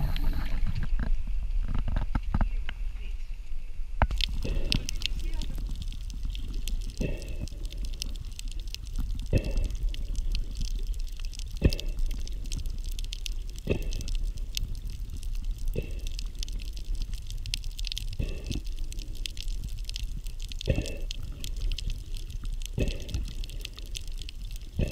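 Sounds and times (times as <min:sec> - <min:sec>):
fine crackling underwater: 0:00.0 - 0:03.0, 0:04.0 - 0:24.9
regulator breath bubbles and hiss: 0:04.1 - 0:17.2, 0:18.0 - 0:24.9.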